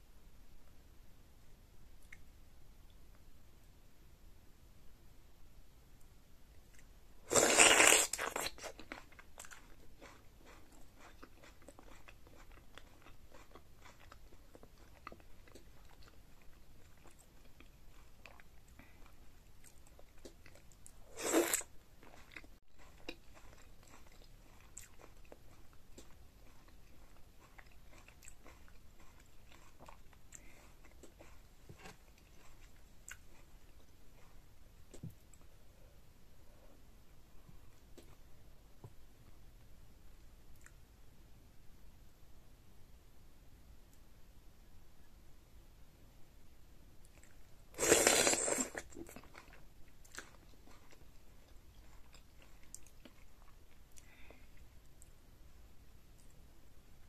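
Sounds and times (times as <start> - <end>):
soft chewing and mouth clicks: 1.9 - 3.3, 6.0 - 41.0, 46.9 - 55.3, 55.9 - 57.0
slurp from spoon: 21.2 - 21.7, 47.8 - 48.9.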